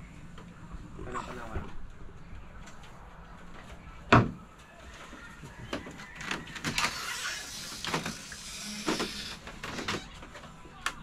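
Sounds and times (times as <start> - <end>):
bamboo floor creaking: 5.6 - 10.5.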